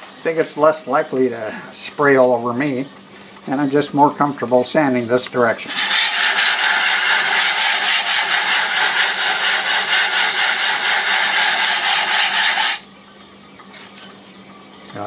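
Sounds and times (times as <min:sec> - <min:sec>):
lathe humming: 0:05.7 - 0:12.8
sandpaper rasping on spinning wood: 0:05.7 - 0:12.8.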